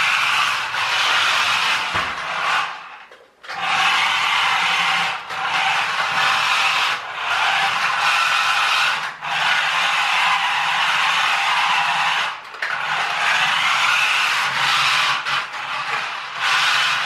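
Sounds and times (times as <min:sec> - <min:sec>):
toy truck electric motors whining: 0:00.0 - 0:17.0
tyres scrabbling on hard floor: 0:00.8 - 0:03.8.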